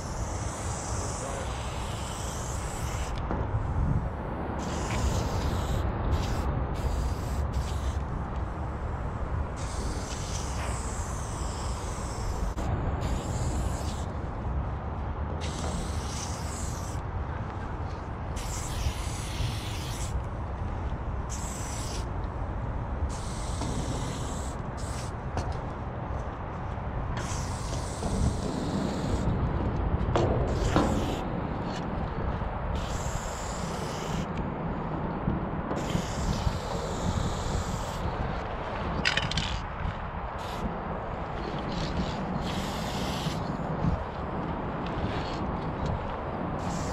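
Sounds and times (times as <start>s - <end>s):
spray paint can hissing: 0.0s - 3.7s, 4.6s - 14.2s, 15.4s - 17.0s, 18.3s - 20.2s, 21.2s - 22.2s, 23.1s - 25.2s, 27.2s - 29.3s, 30.5s - 31.8s, 32.7s - 34.3s, 35.8s - 38.2s, 40.4s - 40.7s, 41.4s - 44.1s, 46.6s - 46.9s
steady low rumble: 0.0s - 46.9s.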